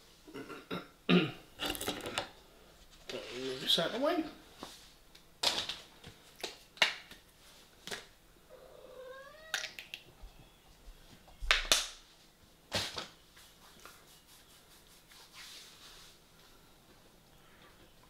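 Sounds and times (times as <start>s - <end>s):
cat meowing: 8.5s - 9.6s.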